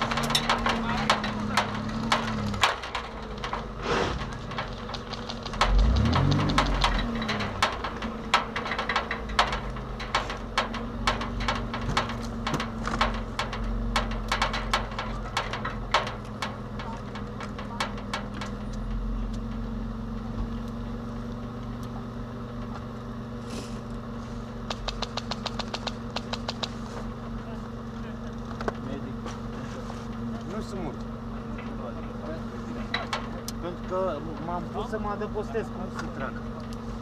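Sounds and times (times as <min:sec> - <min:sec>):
sharp clicks and knocks: 0:00.0 - 0:20.8, 0:24.6 - 0:27.6, 0:30.1 - 0:35.3
car engine running: 0:00.0 - 0:37.0.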